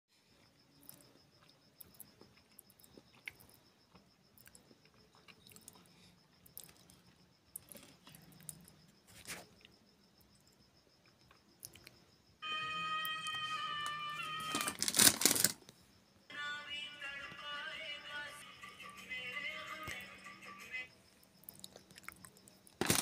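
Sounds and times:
music: 0:12.4 - 0:15.1, 0:16.3 - 0:21.0.

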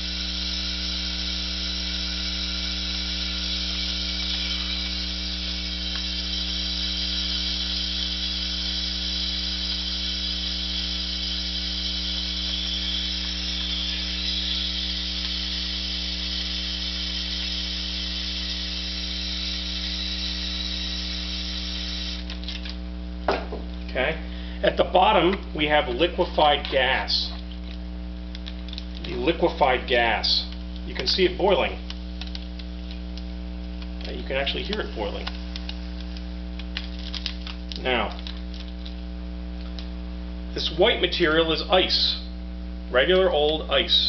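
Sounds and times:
aerosol can spraying hiss: 0:00.0 - 0:22.4
electrical hum: 0:00.0 - 0:44.0.

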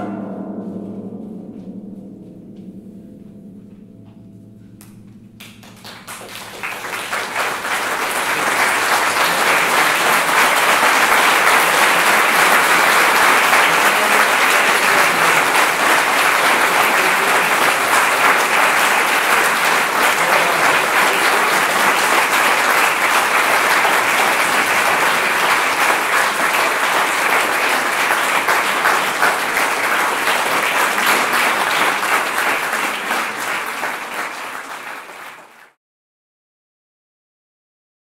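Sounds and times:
audience applauding: 0:05.4 - 0:35.8.

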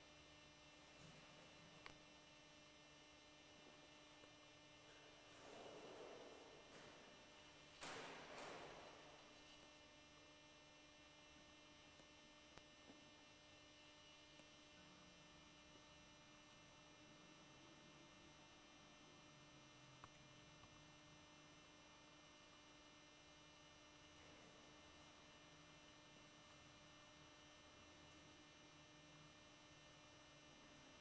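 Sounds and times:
faint electrical hum: 0:00.0 - 0:31.0.

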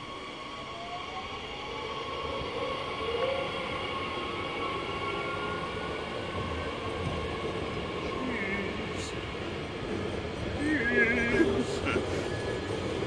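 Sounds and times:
train running rumble: 0:06.3 - 0:13.0.

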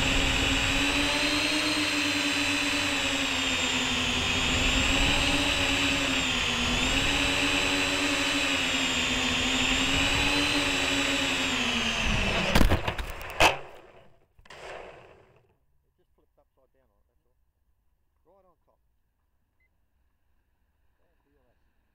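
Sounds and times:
drone motors whining: 0:00.0 - 0:15.5.

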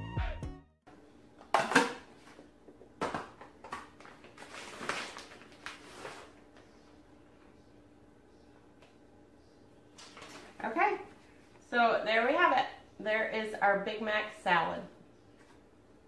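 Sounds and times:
plastic bag rustling: 0:03.6 - 0:06.4.

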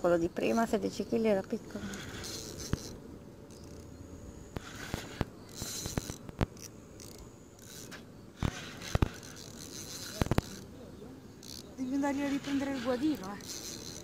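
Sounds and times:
fishing reel clicks: 0:01.4 - 0:10.7, 0:11.4 - 0:14.0.

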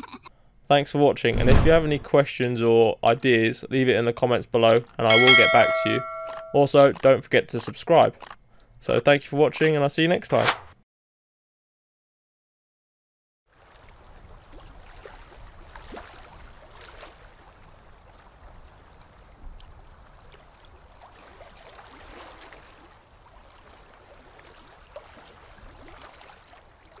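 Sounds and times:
small splashes: 0:13.5 - 0:19.0, 0:19.6 - 0:27.0
small waves lapping: 0:13.5 - 0:27.0.

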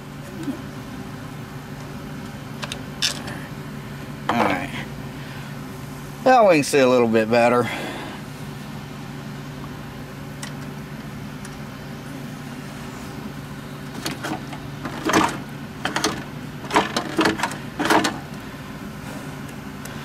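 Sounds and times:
steady low hum: 0:00.0 - 0:20.0
metal parts clinking and scraping: 0:02.6 - 0:03.4.

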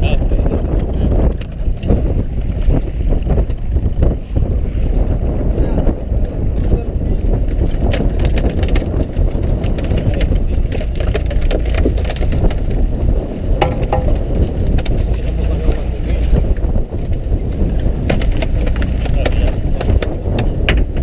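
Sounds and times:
boat engine running: 0:00.0 - 0:21.0
wind on microphone: 0:00.0 - 0:21.0
knocks and clatter on deck: 0:07.6 - 0:12.8, 0:13.6 - 0:15.4, 0:17.5 - 0:21.0.

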